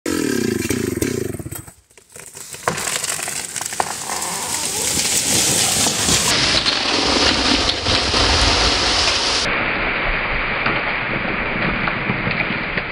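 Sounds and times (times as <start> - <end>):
chainsaw cutting tree trunk: 0.1 - 8.6
wood cracking: 1.6 - 9.5
tree crashing through branches: 2.1 - 12.9.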